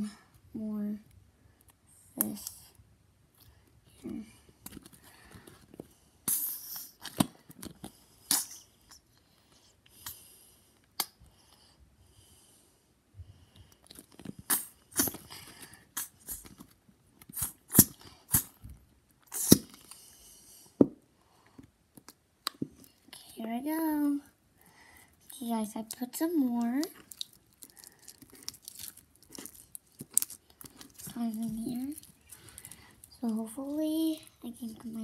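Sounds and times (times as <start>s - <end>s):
glue bottle squirting: 14.5s - 15.3s, 17.3s - 18.6s, 19.3s - 19.8s.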